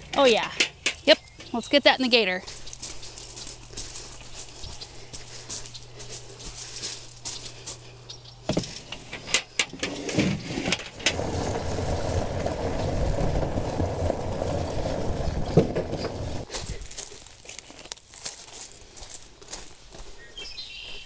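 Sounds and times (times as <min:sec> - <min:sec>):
vehicle driving over gravel: 0:10.0 - 0:16.5.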